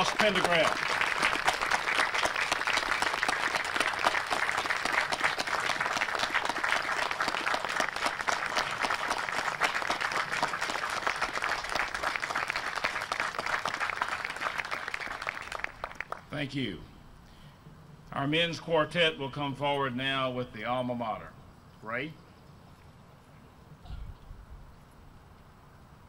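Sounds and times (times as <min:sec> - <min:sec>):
crowd applauding: 0:00.0 - 0:16.3.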